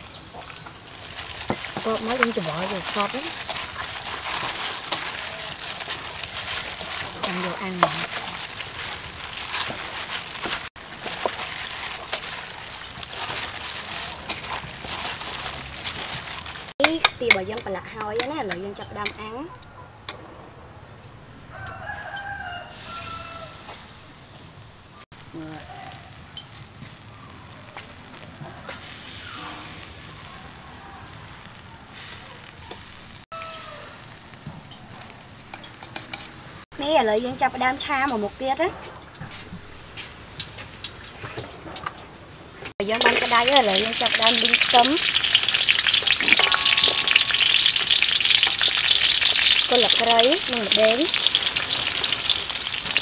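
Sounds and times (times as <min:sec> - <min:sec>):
meat sizzling on a grill: 0:00.0 - 0:18.8, 0:22.0 - 0:38.7, 0:39.3 - 0:53.0.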